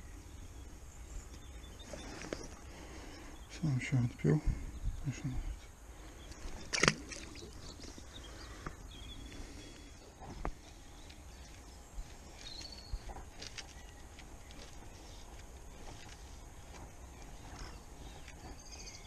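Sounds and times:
bird chirps: 6.1s - 19.0s
fish splashing into water: 6.6s - 7.6s.

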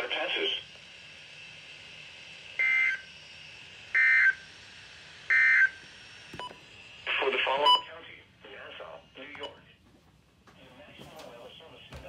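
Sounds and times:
digital data tone bursts: 2.6s - 3.1s
faint radio hiss: 7.1s - 12.0s.

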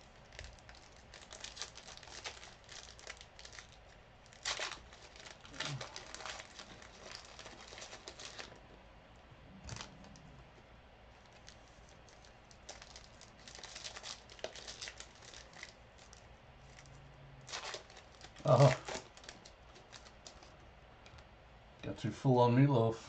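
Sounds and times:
cards rustling: 0.0s - 8.7s, 11.2s - 20.6s
wrappers crinkling: 0.0s - 8.8s, 9.6s - 10.3s, 11.1s - 20.6s.

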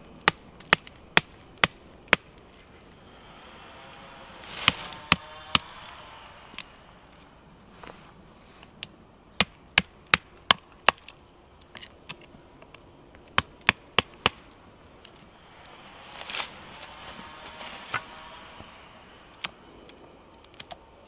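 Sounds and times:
rustle: 1.4s - 9.0s, 14.1s - 21.0s.

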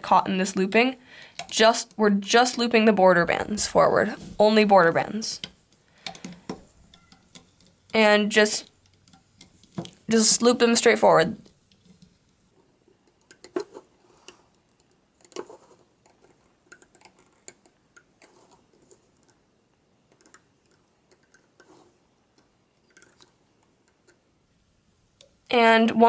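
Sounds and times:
faint clicks on plastic pegs: 5.4s - 7.8s.

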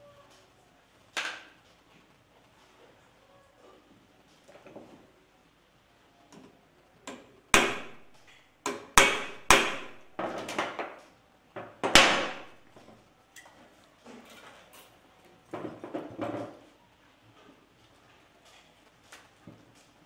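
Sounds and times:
hammer striking metal: 7.6s - 10.3s, 11.8s - 12.6s.

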